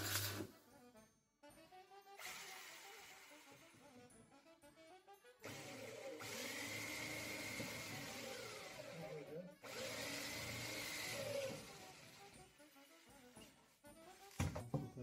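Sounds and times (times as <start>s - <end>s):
electric drill whining: 2.2s - 3.8s, 5.4s - 13.1s.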